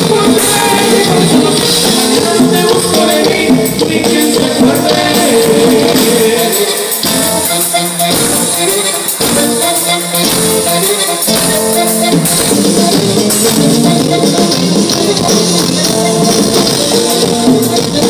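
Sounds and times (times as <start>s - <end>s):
accordion melody: 0.0s - 18.0s
bass: 0.0s - 18.0s
guitar: 0.0s - 18.0s
person singing: 0.0s - 18.0s
steady drum beat: 0.0s - 18.0s.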